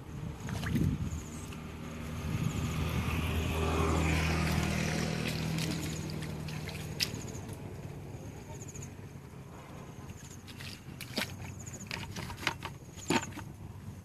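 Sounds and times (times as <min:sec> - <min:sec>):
hands sloshing in shallow water: 0:00.3 - 0:01.6, 0:04.4 - 0:07.6, 0:10.2 - 0:13.3.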